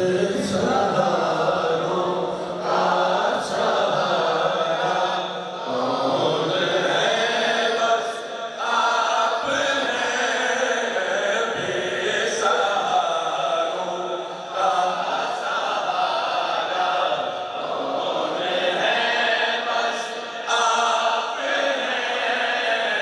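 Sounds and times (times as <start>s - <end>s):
man singing into a microphone: 0.0s - 15.6s.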